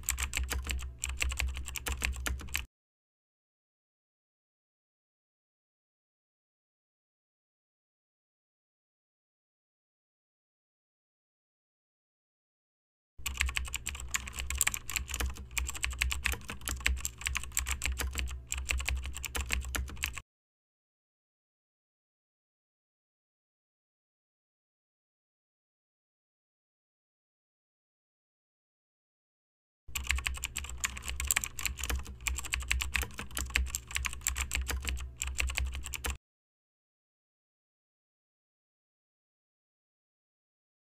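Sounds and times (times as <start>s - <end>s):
keyboard typing: 0.0s - 2.7s, 13.2s - 20.2s, 29.9s - 36.2s.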